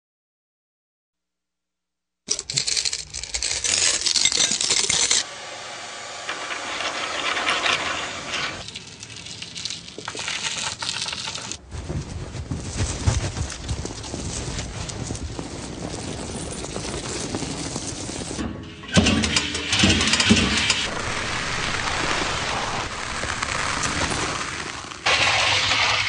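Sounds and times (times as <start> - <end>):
low rumbling: 11.6 - 26.0.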